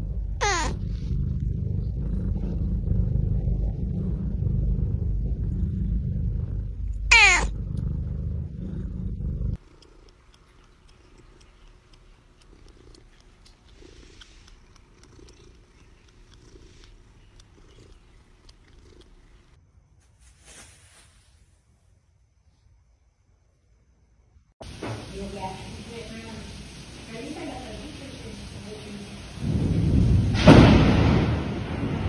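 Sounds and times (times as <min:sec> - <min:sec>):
loud low rumble: 0:00.0 - 0:09.6
cat purring: 0:00.0 - 0:19.6
rustle: 0:19.9 - 0:22.7.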